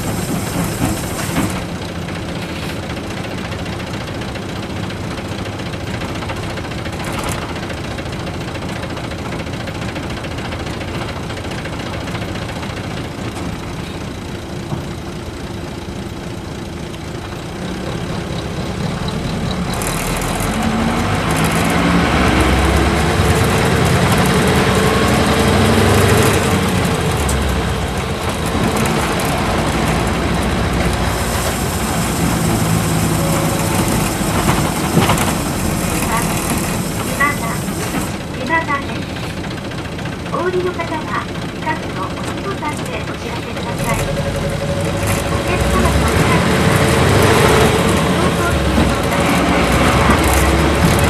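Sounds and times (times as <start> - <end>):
bus diesel engine: 0.0 - 51.0
tyre and road noise: 11.0 - 40.4, 41.2 - 51.0.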